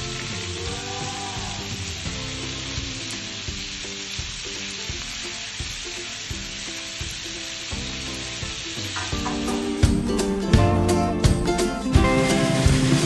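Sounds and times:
food sizzling in hot oil: 0.0s - 10.4s
soft background music: 0.0s - 13.0s.

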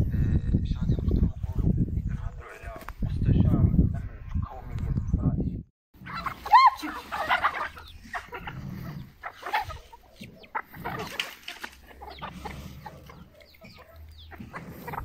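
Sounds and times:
hens clucking: 6.0s - 15.0s.

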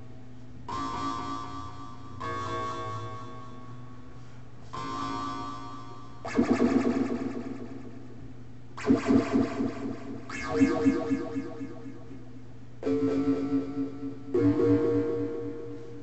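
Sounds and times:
pulsing low synth tones: 6.2s - 8.2s, 8.8s - 16.0s
low hum: 6.2s - 16.0s
held synth tone: 8.8s - 16.0s.

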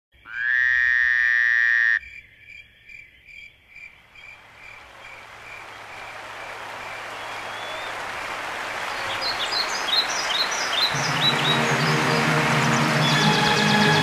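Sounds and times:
frog buzzing call: 0.2s - 2.2s.

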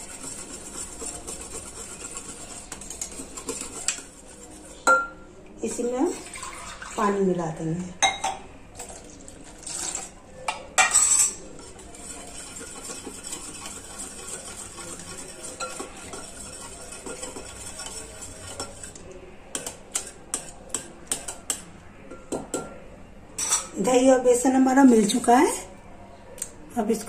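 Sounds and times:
whisk beating batter: 0.0s - 4.9s, 11.4s - 21.7s
water pouring into bowl: 6.1s - 7.2s.

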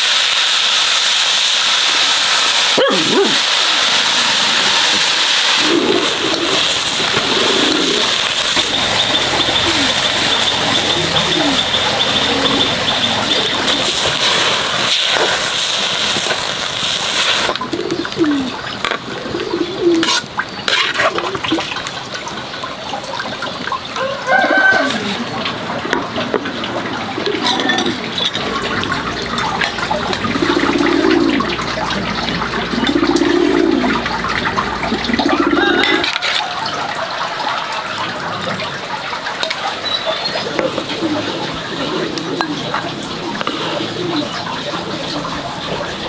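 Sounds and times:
running splashing water: 0.0s - 46.0s
low cooing bird calls: 5.6s - 14.1s, 17.7s - 20.2s, 30.2s - 31.6s, 32.7s - 34.0s, 35.0s - 36.7s, 39.8s - 45.6s.

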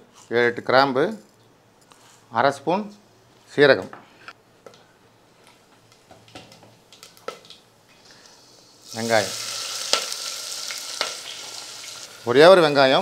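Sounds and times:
spices crackling in oil: 5.9s - 13.0s
onion sizzling in oil: 7.0s - 13.0s.

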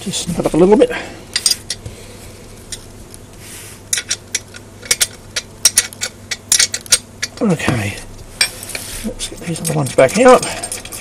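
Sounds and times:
metal spanner clinking on bolts: 3.9s - 7.5s, 9.3s - 11.0s.

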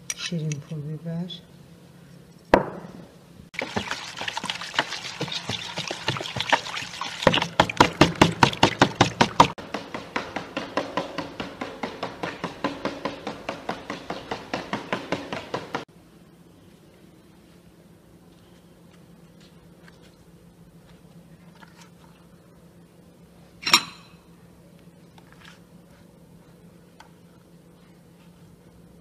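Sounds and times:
whisking batter in a bowl: 3.6s - 9.6s.

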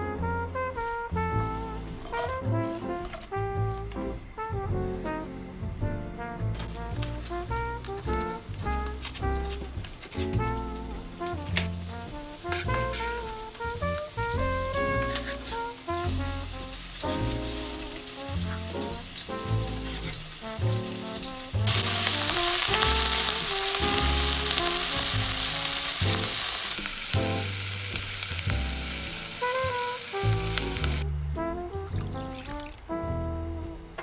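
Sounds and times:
background music with bass: 0.0s - 26.5s, 27.1s - 34.0s
onions sizzling in a frying pan: 11.2s - 31.0s.

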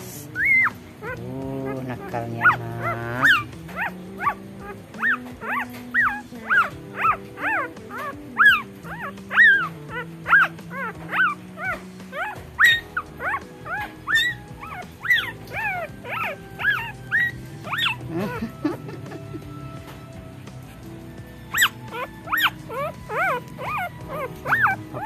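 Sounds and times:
background music with held notes: 0.0s - 25.0s
puppies squeaking and whimpering: 0.0s - 25.0s.

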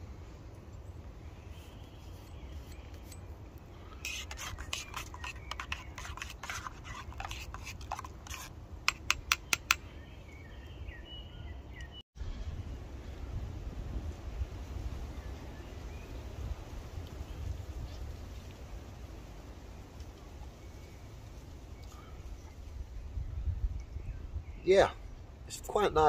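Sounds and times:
spoon scraping metal mug: 3.9s - 9.8s.

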